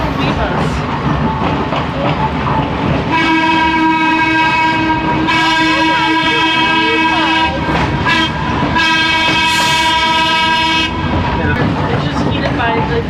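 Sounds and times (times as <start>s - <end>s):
trolley horn blasts: 3.1s - 11.1s.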